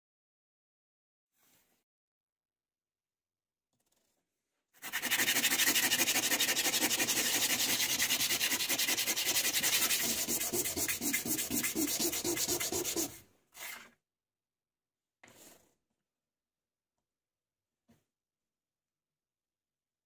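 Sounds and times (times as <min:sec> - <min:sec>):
coin scratching on sandpaper: 0:04.8 - 0:13.9.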